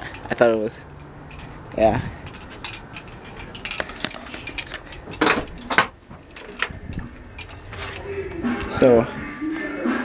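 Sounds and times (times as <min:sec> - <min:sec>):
keys jangling: 0:02.2 - 0:08.0.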